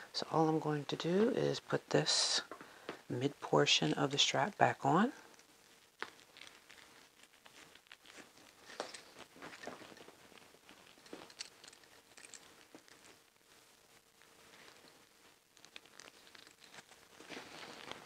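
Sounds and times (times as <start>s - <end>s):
leather strap rustling: 5.2s - 18.0s.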